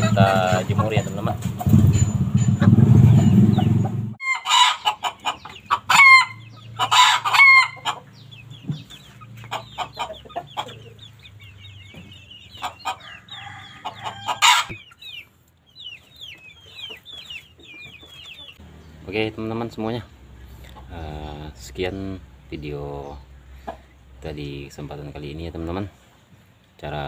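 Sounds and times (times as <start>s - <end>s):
low rumble: 0.0s - 4.2s
chickens clucking loudly: 0.0s - 27.0s.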